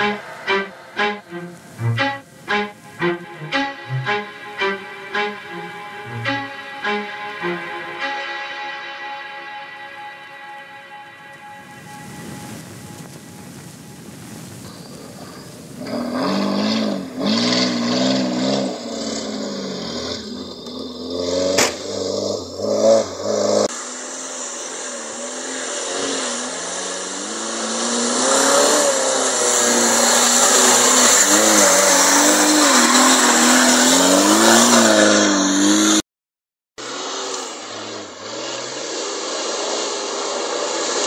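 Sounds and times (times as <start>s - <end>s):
off-road engine revving: 14.8s - 36.0s, 36.8s - 41.0s.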